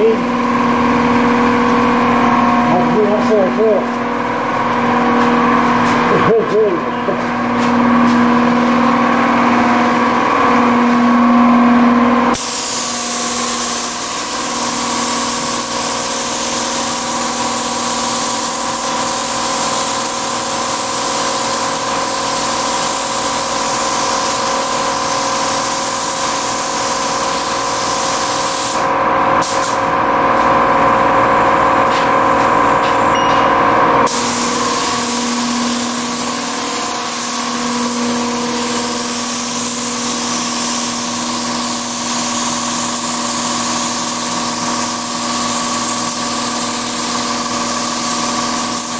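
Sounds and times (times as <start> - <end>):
steady machine hum: 0.0 - 47.9
paint spray gun hissing: 12.4 - 29.8, 34.1 - 48.9.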